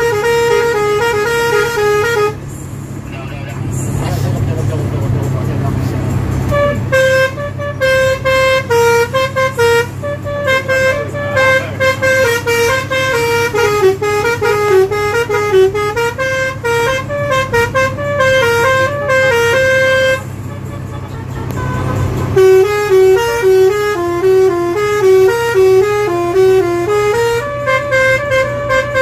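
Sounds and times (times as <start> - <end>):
bus horn playing a tune: 0.0 - 2.9, 5.2 - 29.0
bus engine droning: 0.0 - 29.0.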